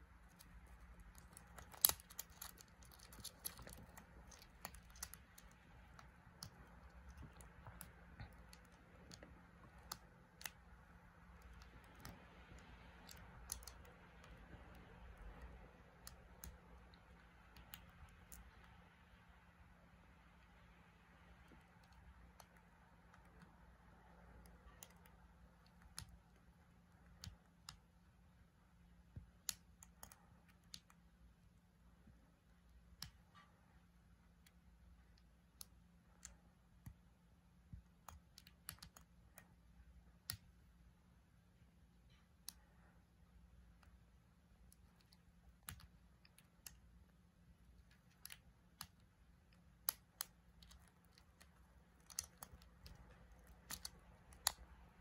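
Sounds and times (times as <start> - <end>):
beetles clicking and knocking: 0.2 - 10.6.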